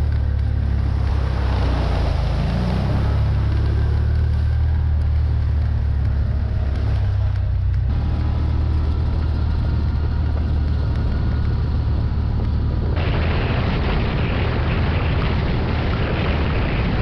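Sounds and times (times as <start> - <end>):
utility vehicle engine droning: 0.0 - 17.0
rough rush of noise: 12.4 - 17.0.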